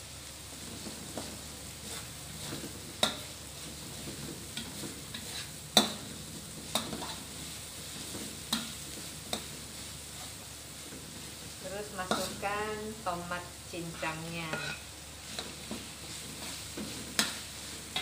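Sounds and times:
spice paste sizzling in a wok: 0.0 - 18.0
metal spatula clacking on wok: 3.0 - 3.3, 4.6 - 6.0, 14.5 - 14.8, 17.2 - 18.0.

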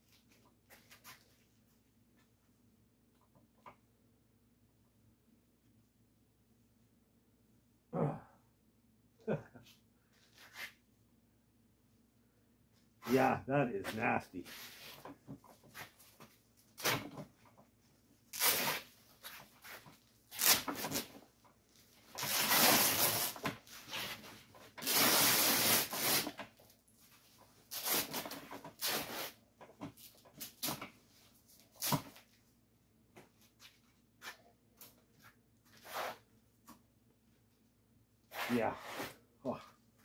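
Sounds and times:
fabric and padding ripping: 18.3 - 19.0, 20.3 - 21.1, 22.2 - 24.2, 24.8 - 26.4, 27.7 - 29.4.

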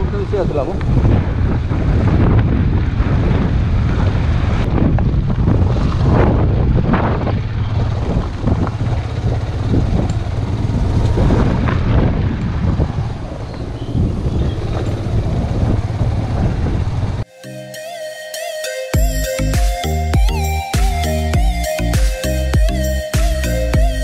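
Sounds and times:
motorcycle engine on dirt track: 0.0 - 17.2
wind rumble on microphone: 0.0 - 17.3.

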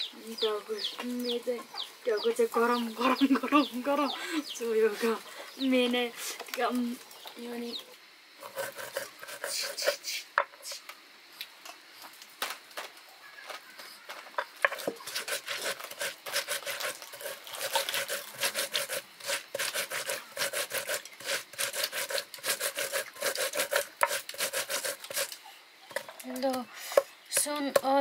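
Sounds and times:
stone grinding on stone: 8.4 - 10.0, 14.6 - 25.3.

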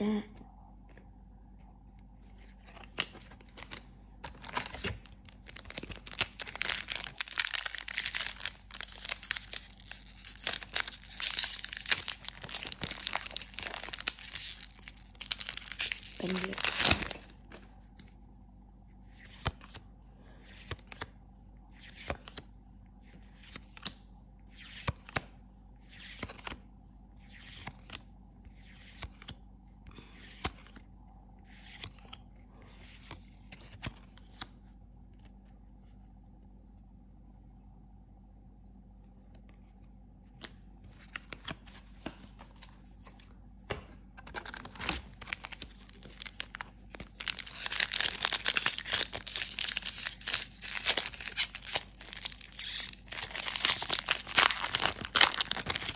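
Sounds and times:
foil pack crinkling and tearing: 2.9 - 17.5, 44.2 - 55.9.

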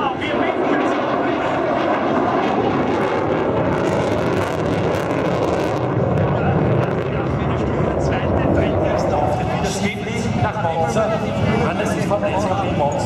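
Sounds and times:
aircraft engine: 0.0 - 13.0.

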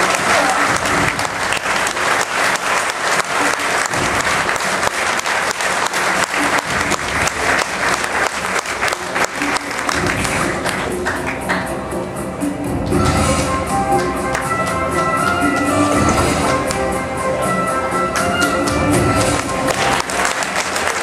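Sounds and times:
audience applauding: 0.0 - 11.7, 18.1 - 21.0.

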